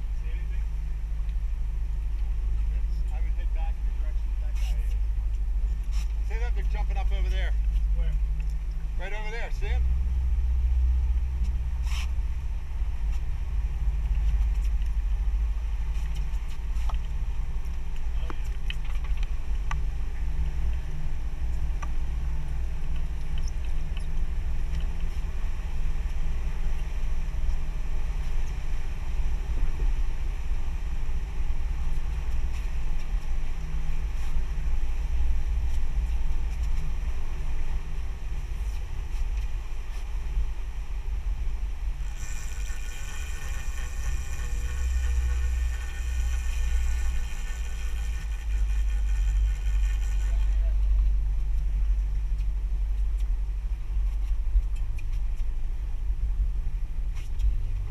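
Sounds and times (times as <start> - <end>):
boat engine rumbling: 0.0 - 57.9.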